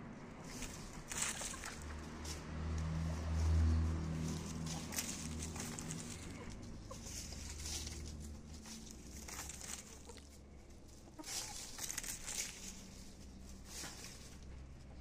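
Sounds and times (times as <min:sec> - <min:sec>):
rustling and scratching in leaves: 0:00.3 - 0:15.0
hen clucking: 0:01.0 - 0:02.1, 0:04.3 - 0:15.0.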